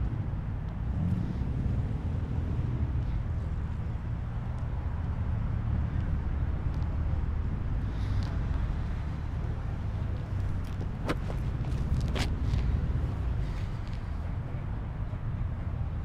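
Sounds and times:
low outdoor rumble: 0.0 - 16.0
footsteps on asphalt: 8.0 - 14.2.

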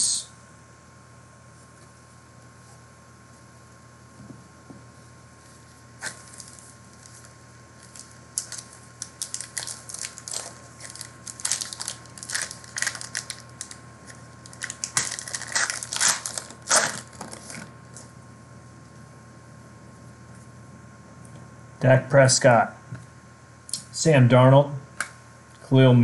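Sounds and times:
plastic wrapper crinkling and tearing: 6.0 - 17.7.

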